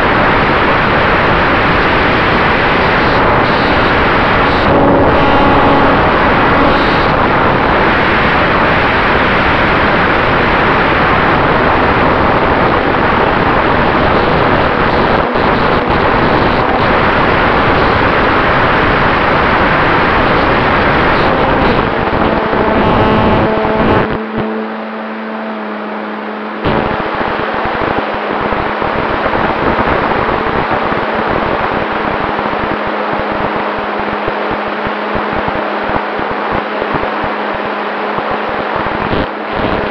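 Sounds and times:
rushing air over microphone: 0.0s - 25.0s, 25.6s - 39.9s.

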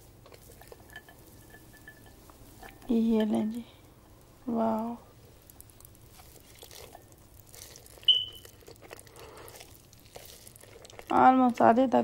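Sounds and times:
noodles being slurped and chewed: 0.0s - 1.4s, 5.2s - 11.8s
short high-pitched tone: 8.1s - 8.4s.

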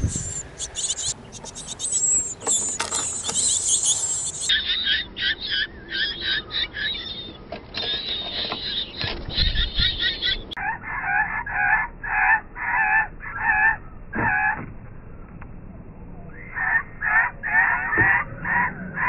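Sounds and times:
short pitched repeated calls: 0.0s - 7.2s.

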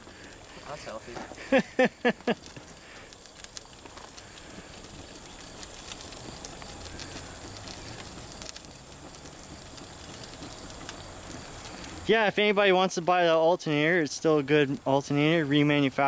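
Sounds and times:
flames hissing and crackling: 0.0s - 16.0s.

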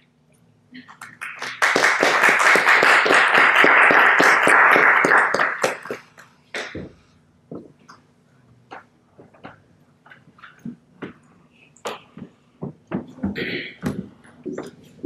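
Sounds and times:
audience applauding: 1.0s - 6.8s.

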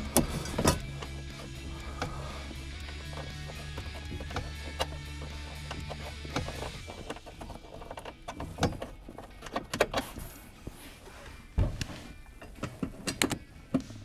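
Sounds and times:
tools and parts clunking: 0.0s - 14.0s
heavy low thump: 11.6s - 11.8s.

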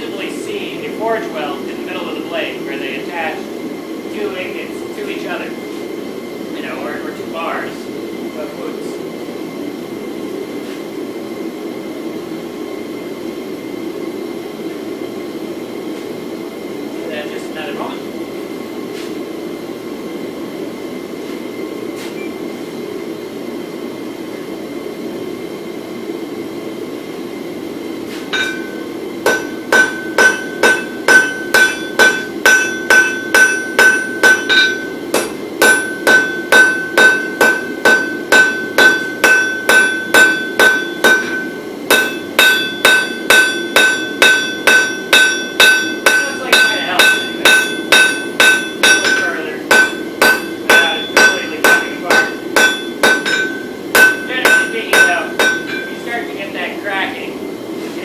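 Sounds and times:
hammer ringing on anvil: 28.3s - 56.1s.

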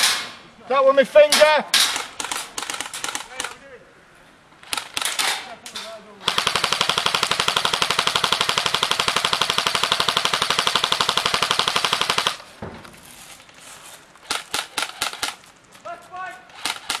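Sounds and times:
airsoft gun full-auto burst: 6.2s - 12.4s, 14.2s - 15.4s, 16.5s - 17.0s.

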